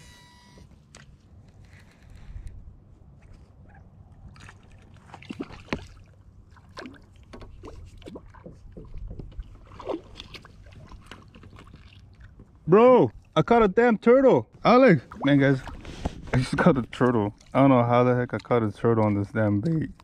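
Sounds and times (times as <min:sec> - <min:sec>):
short squeaks and creaks: 0:00.0 - 0:00.8
wind: 0:00.0 - 0:20.0
water rumbling around hull: 0:00.7 - 0:20.0.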